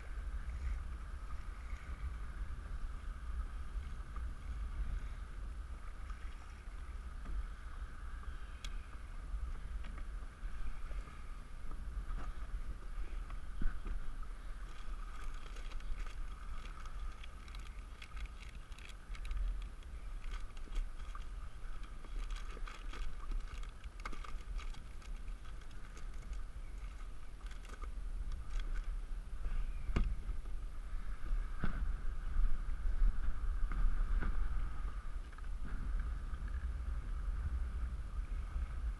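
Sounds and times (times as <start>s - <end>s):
waves lapping against kayak hull: 0.0s - 38.9s
wind rumbling on microphone: 0.0s - 38.9s
bag clicks and rustles: 14.7s - 21.2s, 22.1s - 27.9s.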